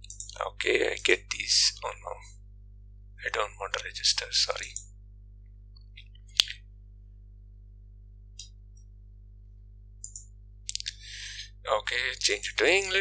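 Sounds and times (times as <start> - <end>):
computer mouse clicks: 0.0 - 0.4, 10.0 - 11.0
low electrical hum: 0.0 - 13.0.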